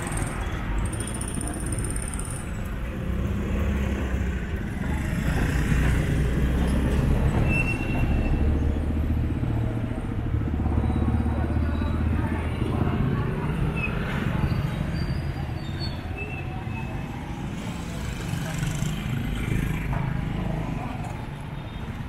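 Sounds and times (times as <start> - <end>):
motorcycles and scooters passing: 0.0 - 7.4, 16.4 - 22.0.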